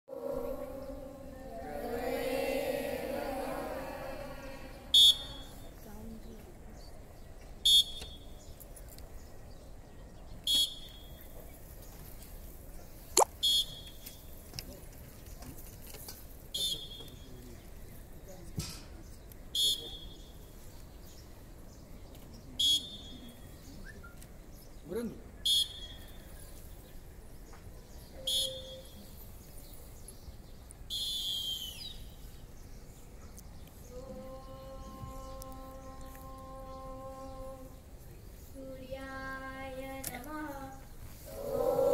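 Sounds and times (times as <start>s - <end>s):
pea whistle blasts: 4.9s - 5.5s, 13.4s - 13.9s, 25.4s - 25.9s, 28.2s - 28.9s, 30.9s - 31.9s.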